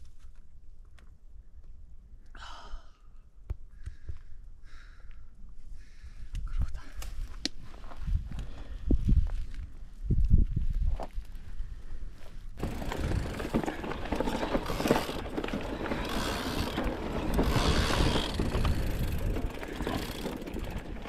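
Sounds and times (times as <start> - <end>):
bike tyres on dirt trail: 7.2 - 21.0
bike drivetrain rattle: 12.6 - 21.0.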